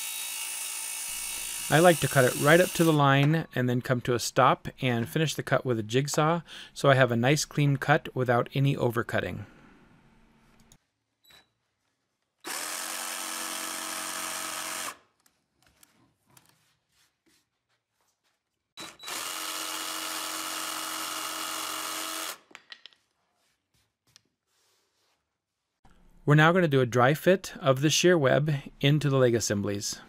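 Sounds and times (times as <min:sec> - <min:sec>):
jigsaw cutting plywood: 0:00.0 - 0:03.0, 0:12.5 - 0:15.0, 0:19.0 - 0:22.4.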